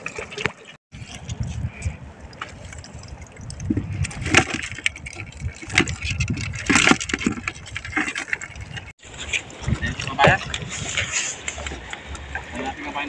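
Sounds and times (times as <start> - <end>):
water splashing in a plastic tub: 0.0 - 8.9.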